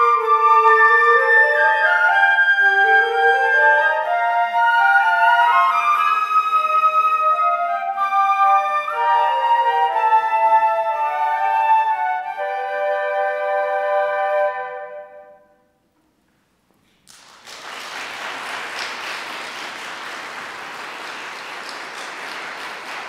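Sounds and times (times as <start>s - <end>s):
flute ensemble sustained chord: 0.0s - 15.5s
audience applause: 16.9s - 23.0s.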